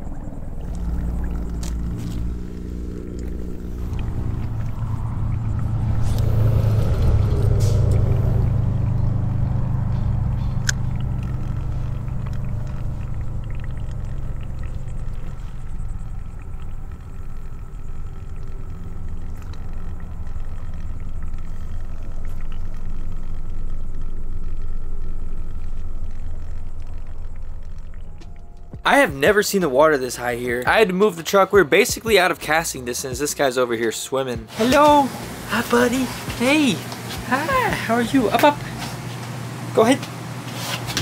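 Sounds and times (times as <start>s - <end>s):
steady low rumble: 0.0s - 30.9s.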